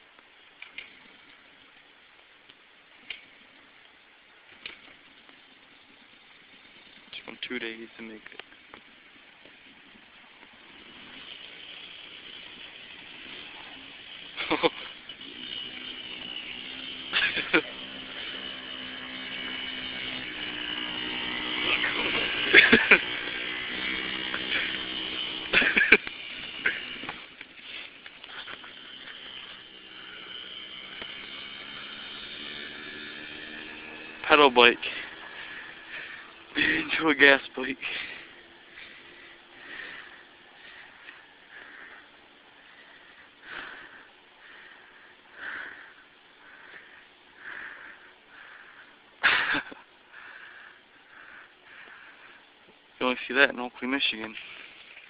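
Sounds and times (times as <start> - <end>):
small gas engine running: 4.4 - 55.0
breathing close to microphone: 37.8 - 49.1, 50.1 - 52.5.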